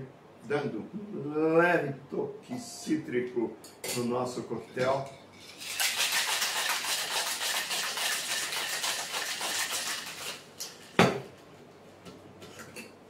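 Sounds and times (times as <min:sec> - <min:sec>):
ice rattling in cocktail shaker: 0:05.4 - 0:11.0.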